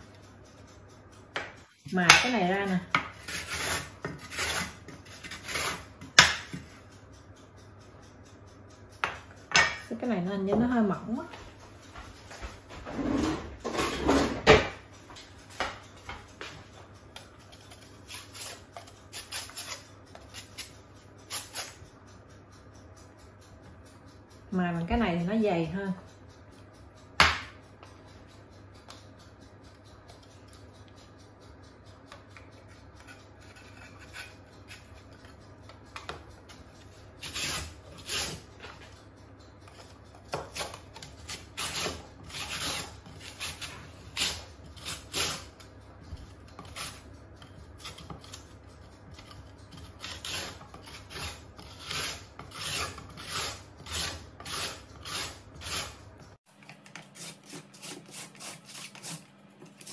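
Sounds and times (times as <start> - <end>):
carrot rasping on grater: 3.1 - 6.1, 17.4 - 21.8, 33.0 - 35.4, 36.8 - 38.6, 39.7 - 56.1, 57.0 - 59.9.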